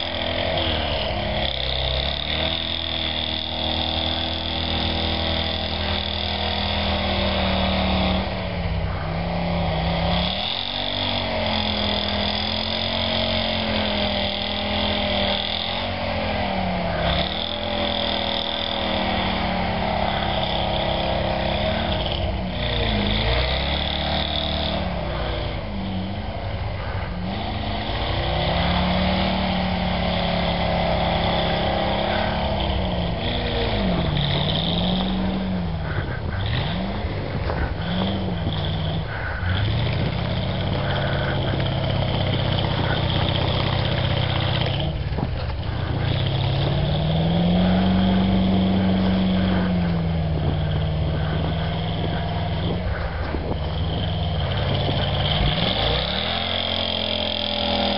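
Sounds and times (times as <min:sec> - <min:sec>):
engine revving under load: 0:00.0 - 0:57.9
high whine: 0:28.8 - 0:57.9.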